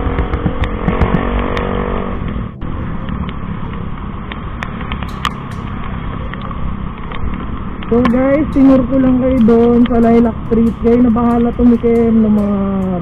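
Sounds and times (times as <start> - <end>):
motorcycle engine hum: 0.0 - 13.0
sharp ticks: 0.0 - 13.0
wind and road noise: 0.0 - 13.0.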